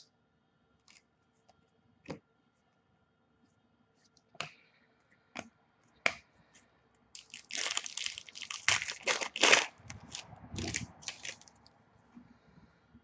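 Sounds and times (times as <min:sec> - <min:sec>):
card pack wrapper crinkling and tearing: 0:07.2 - 0:11.7.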